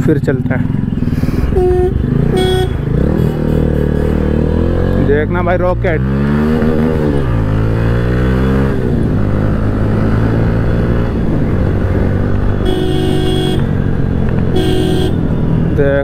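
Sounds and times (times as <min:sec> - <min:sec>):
motorcycle engine accelerating: 0:00.0 - 0:16.0
horn honking: 0:01.5 - 0:04.7, 0:12.6 - 0:13.8, 0:14.4 - 0:15.4.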